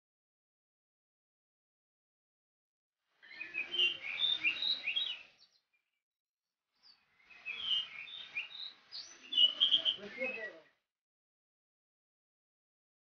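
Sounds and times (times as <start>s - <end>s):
bird singing whistled notes: 3.2s - 5.9s, 6.8s - 10.8s.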